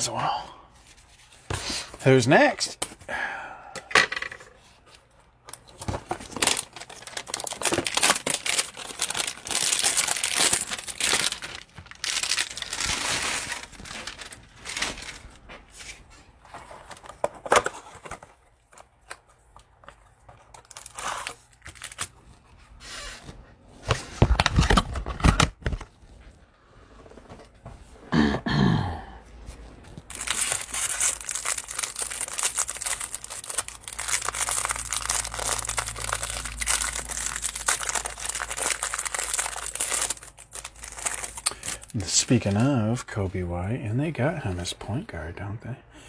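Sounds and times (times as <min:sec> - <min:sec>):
plastic wrapping crinkling and tearing: 0:05.5 - 0:15.5, 0:16.7 - 0:22.4, 0:30.0 - 0:42.8.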